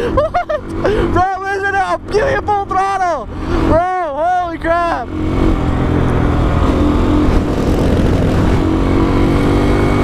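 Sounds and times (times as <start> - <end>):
dirt bike engine at full throttle: 0.0 - 10.0
rider speaking: 0.9 - 5.2.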